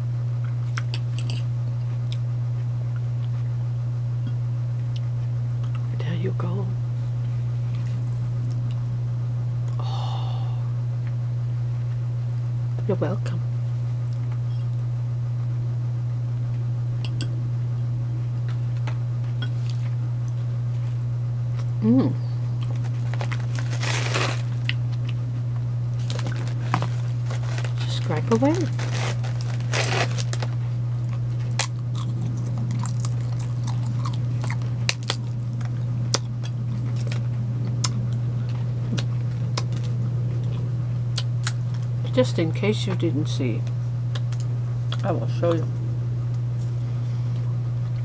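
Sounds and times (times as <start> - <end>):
steady low hum: 0.0 - 48.0
crackers crunching and chewing: 0.4 - 2.2, 22.5 - 41.9, 44.1 - 45.0.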